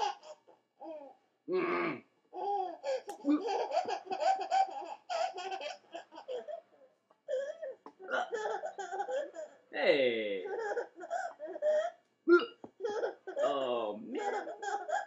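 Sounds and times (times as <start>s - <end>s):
toddler laughing: 0.0s - 1.0s, 2.4s - 6.6s, 12.8s - 13.6s, 14.2s - 15.0s.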